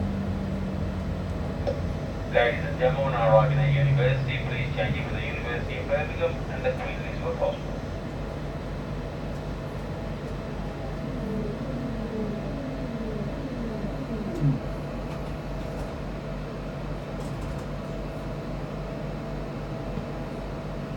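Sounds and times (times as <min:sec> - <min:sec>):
train motors whining downward: 0:00.0 - 0:08.1, 0:09.4 - 0:15.3
steady electrical hum: 0:00.0 - 0:20.9.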